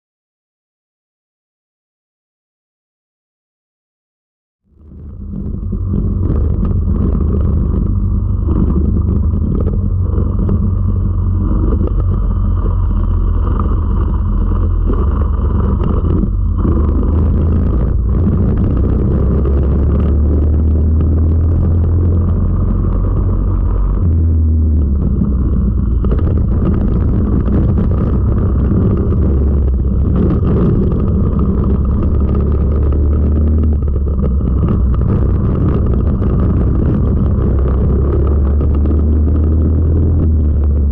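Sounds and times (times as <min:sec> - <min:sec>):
racing kart engine running hard: 0:04.8 - 0:40.9.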